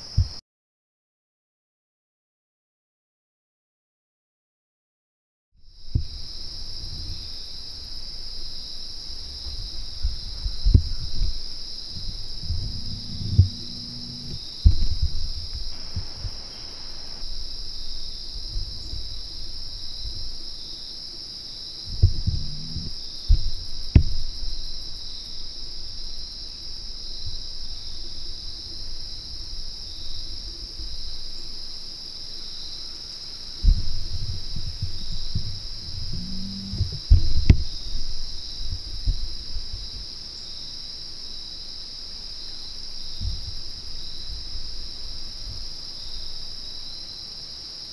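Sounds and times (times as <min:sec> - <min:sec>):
insects trilling: 0:05.6 - 0:47.9
thumps and rustles near microphone: 0:09.1 - 0:20.6, 0:21.8 - 0:26.2, 0:33.6 - 0:40.2, 0:43.1 - 0:46.5.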